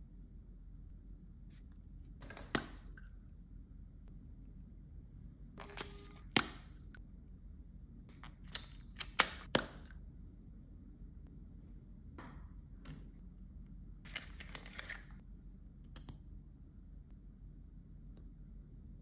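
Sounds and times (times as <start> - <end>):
packaging rustling: 14.1 - 15.2.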